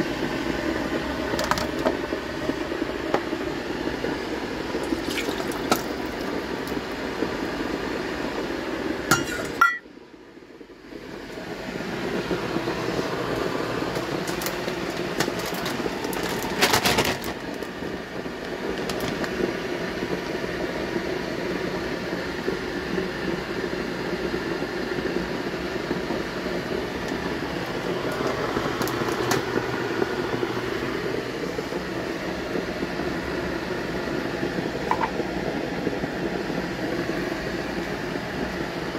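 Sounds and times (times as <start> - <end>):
steady hum: 0.0 - 38.9
dishes clinking: 9.1 - 9.8.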